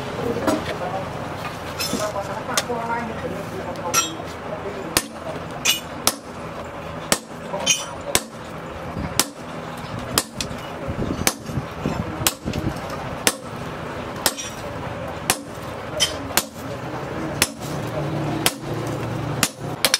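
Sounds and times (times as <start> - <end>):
hammer striking hot steel: 3.9 - 4.3, 4.9 - 6.4, 7.0 - 8.5, 9.1 - 11.6, 12.2 - 13.5, 14.2 - 16.7, 17.4 - 19.9.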